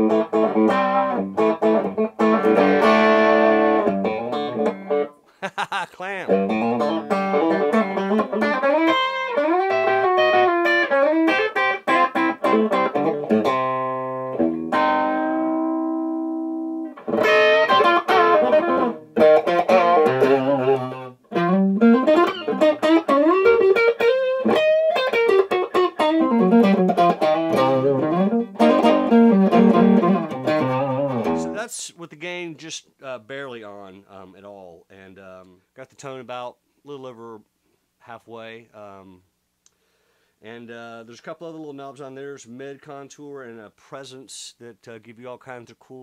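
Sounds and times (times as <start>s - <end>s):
overdriven electric guitar licks: 0.0s - 31.6s.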